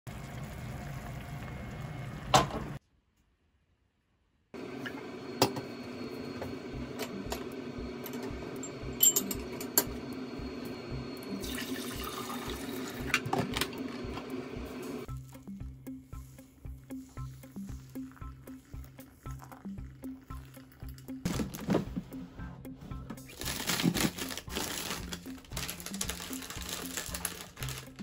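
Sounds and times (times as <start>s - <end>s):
pan simmering: 0.1s - 2.8s
mugs clinking on steel counter: 7.0s - 10.0s.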